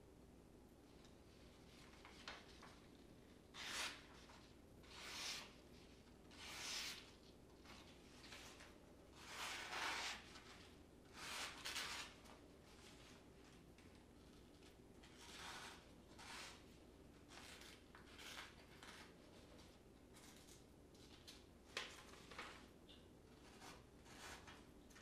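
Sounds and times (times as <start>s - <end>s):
knife slicing paper: 3.5s - 5.6s, 6.3s - 7.1s, 8.2s - 10.5s, 11.1s - 12.2s.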